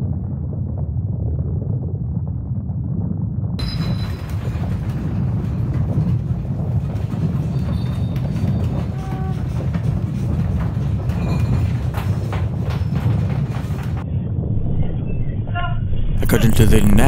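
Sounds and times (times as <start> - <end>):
earthquake rumble: 0.0 - 17.0.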